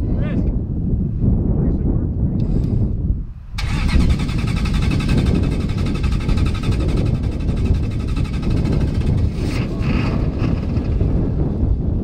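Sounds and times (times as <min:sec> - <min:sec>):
diesel engine cranking: 0:03.6 - 0:11.2.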